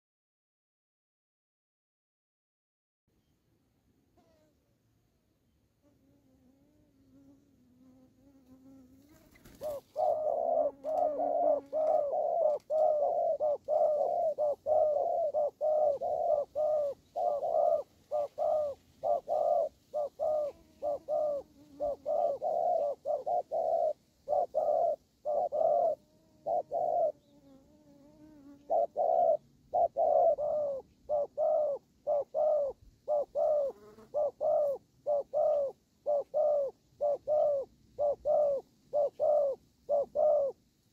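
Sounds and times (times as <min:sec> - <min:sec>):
doves cooing: 0:09.0 - 0:40.6.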